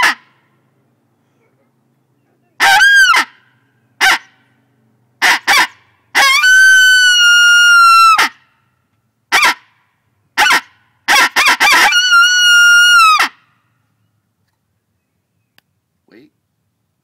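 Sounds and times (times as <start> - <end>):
coyote call yelps and howl: 2.6 - 3.4, 4.0 - 4.4, 5.2 - 8.4, 9.3 - 9.6, 10.4 - 13.4.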